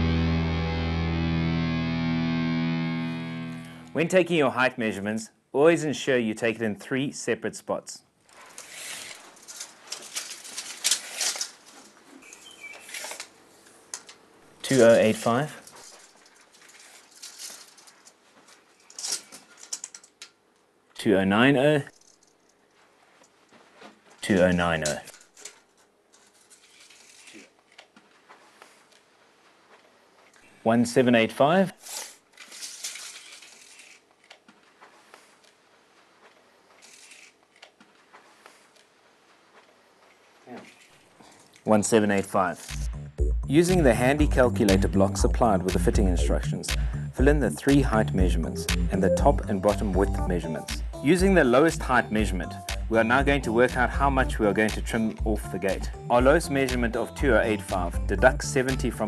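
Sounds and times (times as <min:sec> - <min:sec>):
tape measure rattling and clicking: 0:08.3 - 0:13.3, 0:15.6 - 0:20.4, 0:21.9 - 0:22.6, 0:24.3 - 0:27.9, 0:31.8 - 0:34.5, 0:36.8 - 0:37.8, 0:42.6 - 0:42.9
bird chirps: 0:12.2 - 0:13.0.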